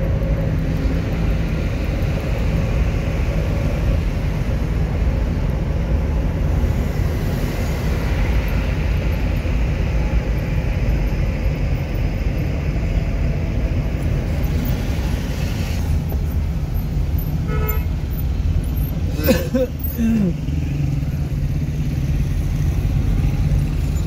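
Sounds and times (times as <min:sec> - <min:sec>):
vehicle engine and road noise: 0:00.0 - 0:24.0
car horn toot: 0:17.4 - 0:18.0.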